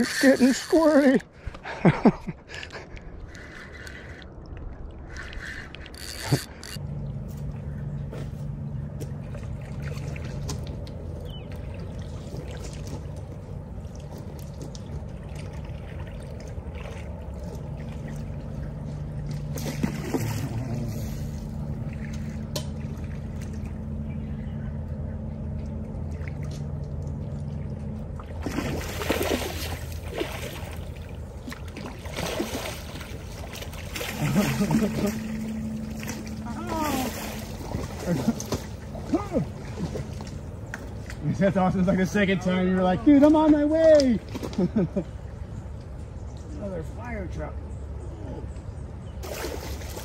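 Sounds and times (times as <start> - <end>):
low motor hum: 0.0 - 50.0
water trickling and lapping: 0.0 - 50.0
fish splashing and thrashing: 2.8 - 24.0, 25.4 - 41.2, 49.2 - 50.0.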